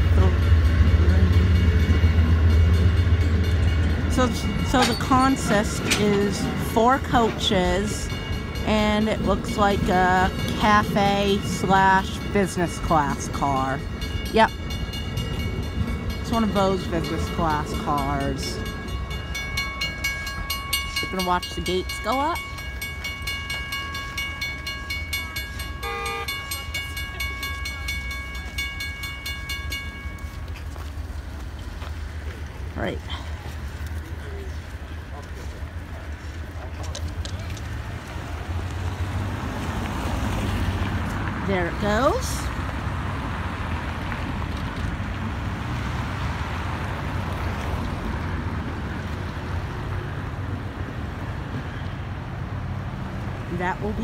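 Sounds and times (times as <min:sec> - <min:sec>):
crossing warning bell ringing: 0:00.0 - 0:32.2, 0:37.7 - 0:52.1, 0:52.8 - 0:54.0
diesel locomotive rumble: 0:00.0 - 0:54.0
train wheels on rails: 0:00.0 - 0:54.0
horn blast: 0:25.8 - 0:26.5.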